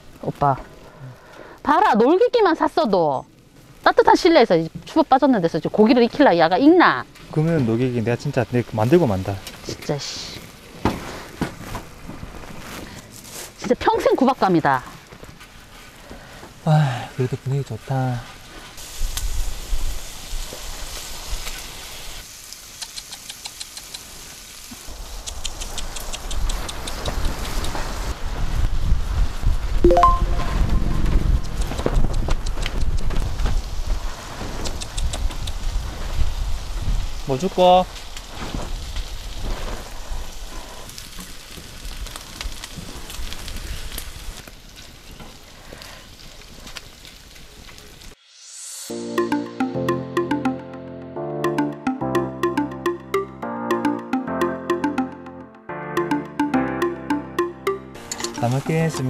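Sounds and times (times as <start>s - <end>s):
small crackles and pops: 0.0s - 29.5s, 31.3s - 48.2s
meat sizzling in a frying pan: 18.7s - 25.2s, 33.4s - 48.6s
lip-smacking kissing clicks: 22.8s - 24.1s, 25.2s - 27.8s, 34.6s - 35.6s.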